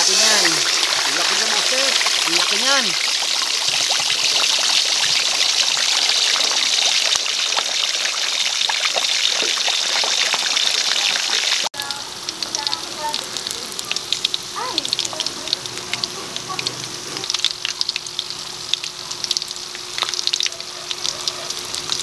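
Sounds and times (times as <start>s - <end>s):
meat sizzling in hot oil: 0.0s - 22.0s.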